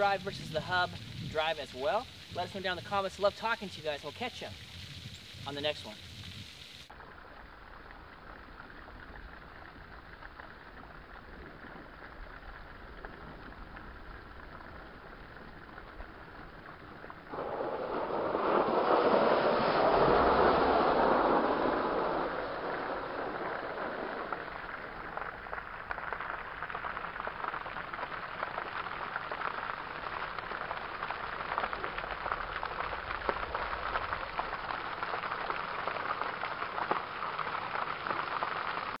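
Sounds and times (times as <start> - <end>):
water rush: 0.0 - 6.9, 17.3 - 39.0
fountain water splashing: 0.0 - 39.0.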